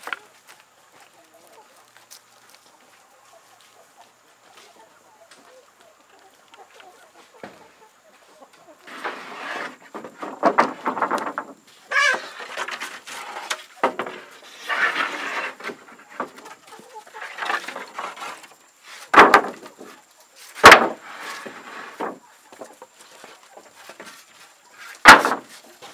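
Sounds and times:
chickens clucking: 0:00.0 - 0:25.9
sharp knocks: 0:20.6 - 0:21.0.

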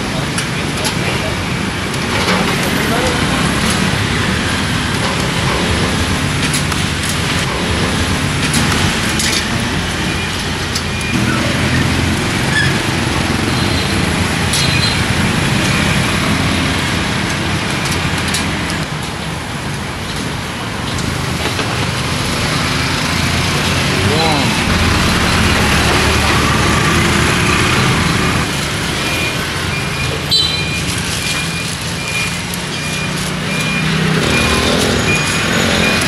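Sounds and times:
street traffic engines: 0:00.0 - 0:36.0.

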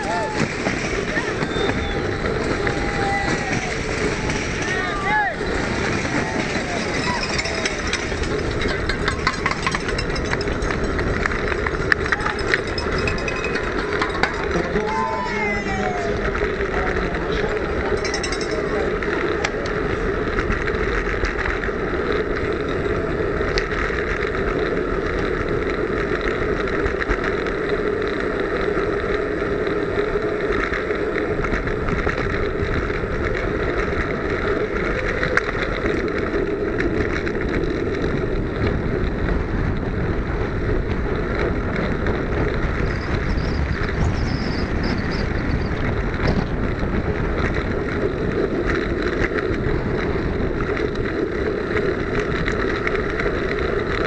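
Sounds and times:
bicycle road noise: 0:00.0 - 0:54.0
wind rush: 0:00.0 - 0:54.0.

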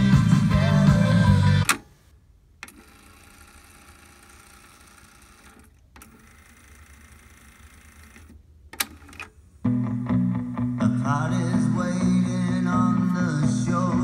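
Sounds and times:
cassette deck tape winding whir: 0:00.9 - 0:02.0, 0:02.6 - 0:09.4
cassette deck click: 0:01.6 - 0:01.9.

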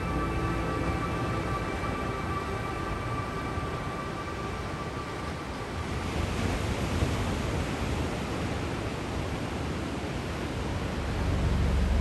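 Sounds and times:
low sustained music: 0:00.0 - 0:07.0, 0:10.4 - 0:12.0
ocean surf on rocky shore: 0:00.0 - 0:12.0.

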